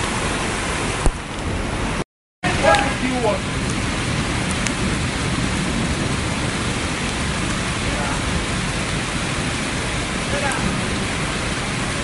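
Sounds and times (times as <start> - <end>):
floodwater rushing: 0.0 - 12.0
heavy rain: 0.0 - 12.0.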